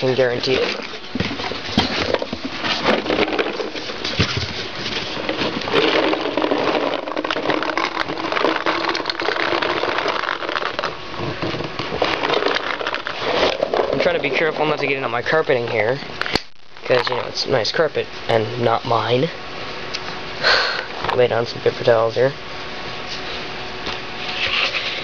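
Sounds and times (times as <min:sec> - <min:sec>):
paintballs rattling in cardboard box: 0:00.0 - 0:15.5.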